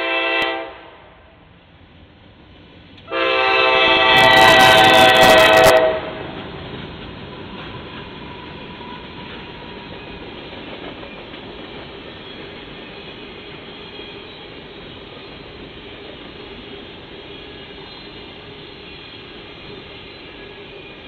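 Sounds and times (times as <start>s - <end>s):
freight train wheels on rails: 0.0s - 21.0s.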